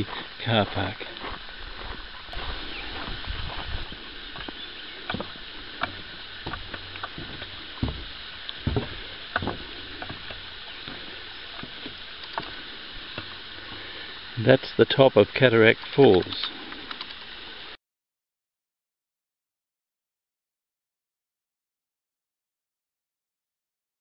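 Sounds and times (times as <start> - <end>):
footsteps on a bush track: 0.0 - 13.9
steady background hiss: 0.0 - 17.8.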